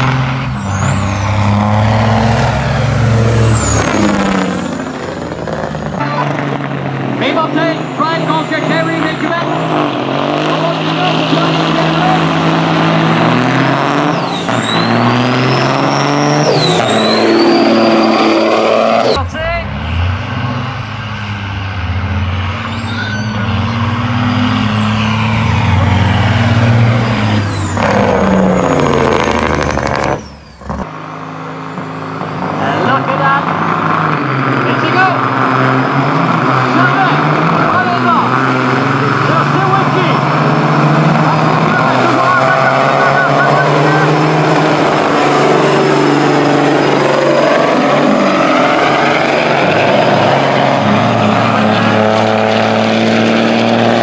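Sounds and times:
diesel truck engine passing: 0.0 - 54.0
high whistle falling in pitch: 14.0 - 19.2.

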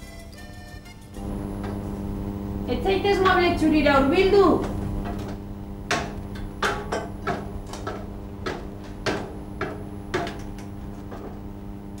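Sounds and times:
footsteps on metal ladder: 4.5 - 12.0.

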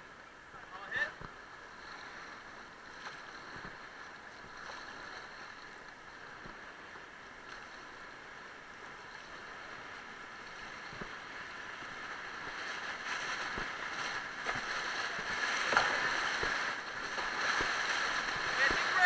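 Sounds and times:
whitewater rushing: 0.1 - 19.0
small splashes and knocks: 2.9 - 5.7, 10.5 - 19.0.

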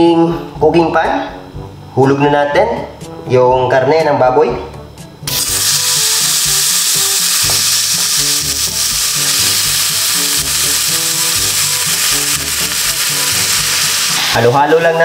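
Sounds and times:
pork sizzling in a wok: 5.2 - 15.0.

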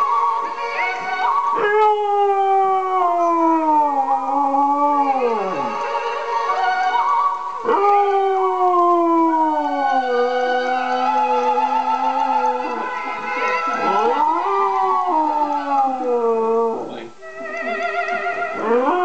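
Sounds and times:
operatic soprano singing: 0.0 - 1.6, 9.5 - 16.1, 17.2 - 19.0
dog howling: 0.8 - 6.0, 7.6 - 19.0.

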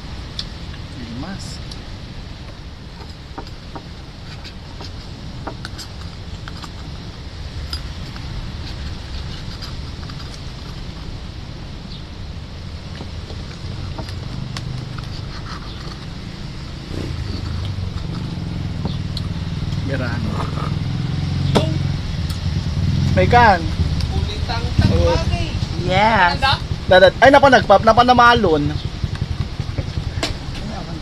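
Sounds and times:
steady low rumble: 0.0 - 31.0
sea urchins clicking and scraping: 3.0 - 11.2, 13.0 - 18.4
spoon scraping inside a shell: 7.7 - 11.0, 14.8 - 16.2.

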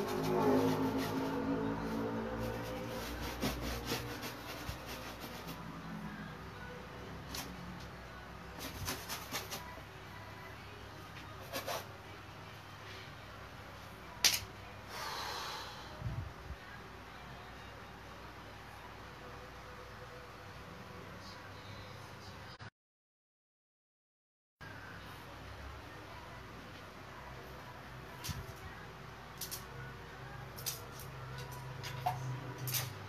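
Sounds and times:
tools clicking and rubbing: 29.4 - 29.7, 30.5 - 33.0.

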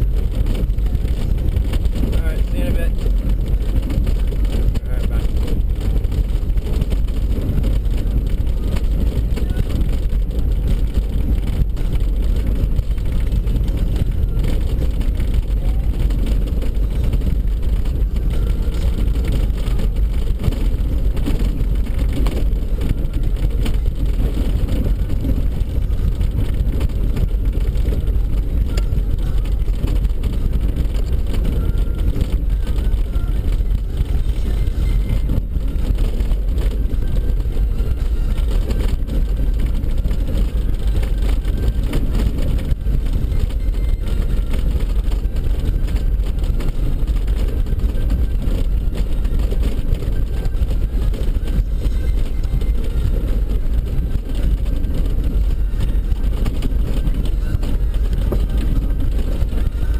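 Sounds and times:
car engine and tyre noise: 0.0 - 59.9.

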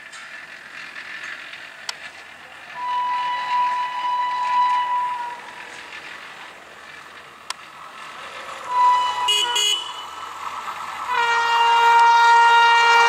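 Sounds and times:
train horn blasts: 2.8 - 5.7, 8.6 - 10.2, 11.1 - 13.0.

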